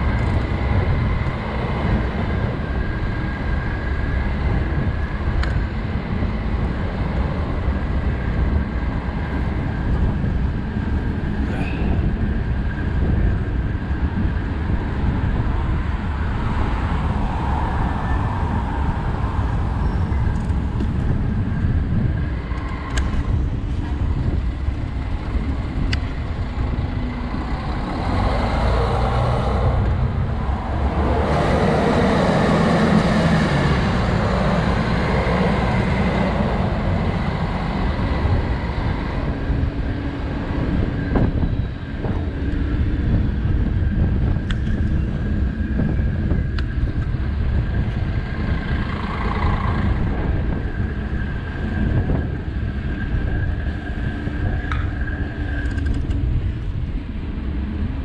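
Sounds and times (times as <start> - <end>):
city street traffic: 0.0 - 58.0
vehicle passing close: 26.7 - 39.6.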